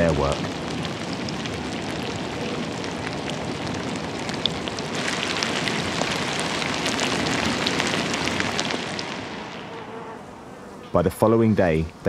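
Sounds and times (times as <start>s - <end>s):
maggots crackling: 0.0s - 12.0s.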